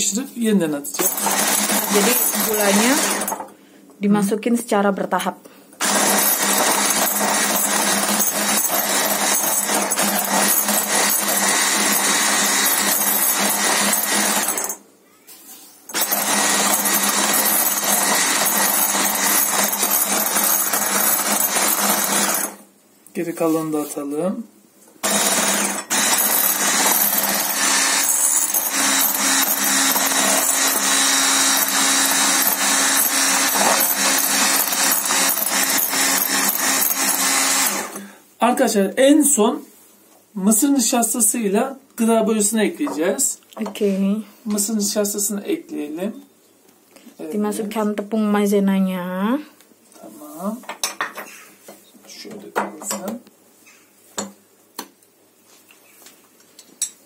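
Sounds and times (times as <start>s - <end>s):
electric hand mixer whipping: 1.0s - 3.4s, 5.8s - 14.7s, 15.9s - 22.6s, 25.0s - 38.0s.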